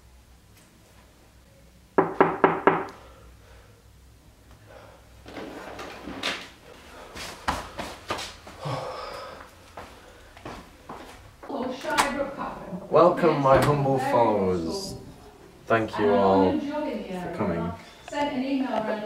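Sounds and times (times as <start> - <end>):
knocks on a door: 2.0 - 2.9.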